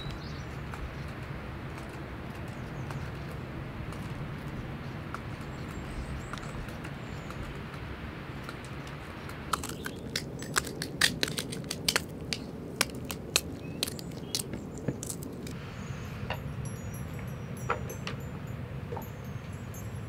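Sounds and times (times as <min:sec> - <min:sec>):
knife slicing chili peppers: 0:09.4 - 0:15.6.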